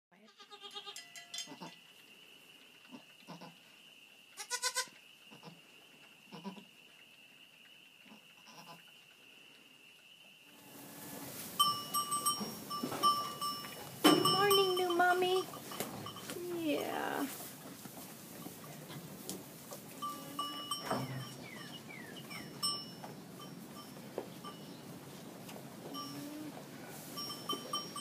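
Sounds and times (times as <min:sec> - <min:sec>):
sharp ringing clink: 0:00.9 - 0:01.7, 0:11.6 - 0:16.4, 0:20.0 - 0:24.8
goats bleating: 0:04.4 - 0:05.6.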